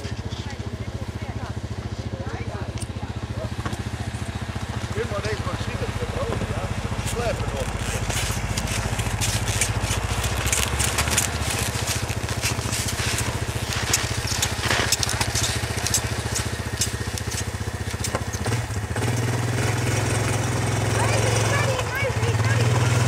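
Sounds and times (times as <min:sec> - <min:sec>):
quad bike engine idling: 0:00.0 - 0:23.0
small clicks and crunches: 0:06.3 - 0:19.3.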